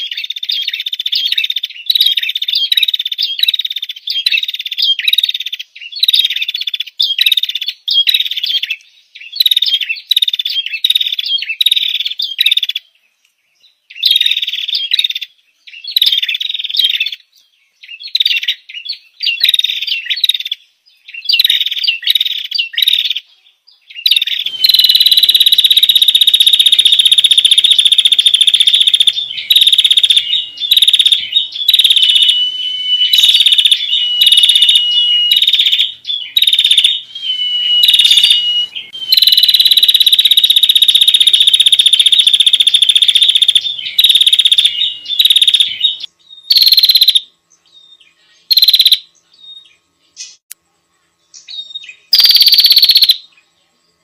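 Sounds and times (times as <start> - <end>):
high-pitched bird trills: 24.0 - 47.2, 48.5 - 49.0, 51.5 - 53.2.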